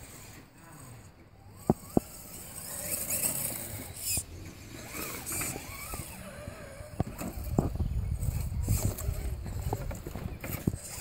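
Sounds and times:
electric motor and gears whining: 0.0s - 11.0s.

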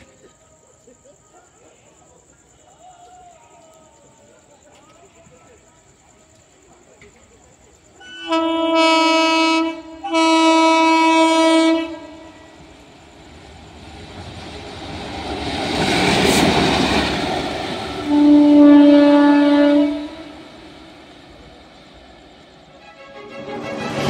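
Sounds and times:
locomotive horn blasts: 8.0s - 12.4s, 18.1s - 20.3s, 22.8s - 24.0s
train wheels rushing: 8.8s - 24.0s.

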